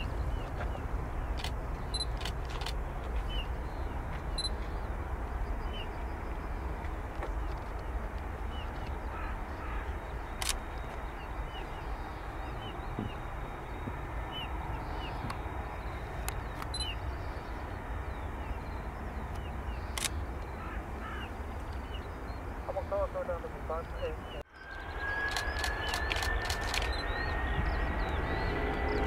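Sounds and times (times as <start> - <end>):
distant jet engines idling: 0.0 - 29.0
bird calling: 8.5 - 29.0
sharp clicks: 10.4 - 10.6, 19.3 - 20.2, 25.2 - 27.1.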